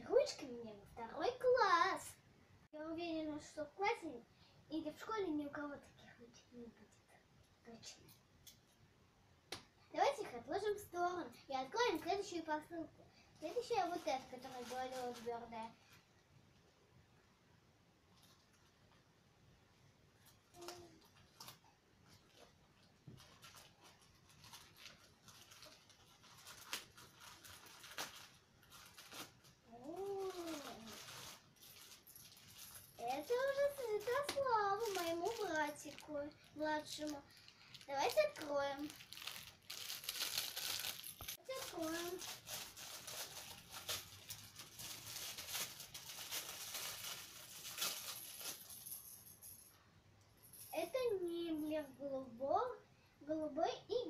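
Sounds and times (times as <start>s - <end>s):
plastic bag crinkling and tearing: 13.4s - 15.7s, 23.1s - 48.7s.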